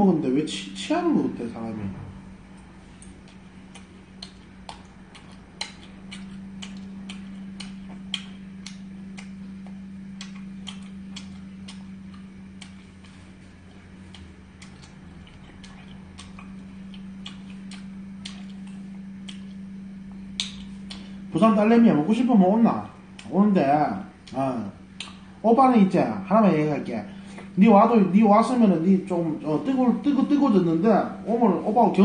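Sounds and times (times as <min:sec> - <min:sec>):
steady low hum: 0:00.0 - 0:32.0
sharp light clicks: 0:03.0 - 0:12.8, 0:20.4 - 0:21.1.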